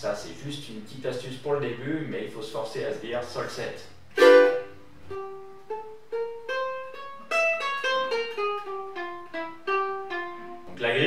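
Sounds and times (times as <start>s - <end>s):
ukulele chord strummed: 4.1s - 11.0s
ukulele notes plucked: 4.1s - 11.0s.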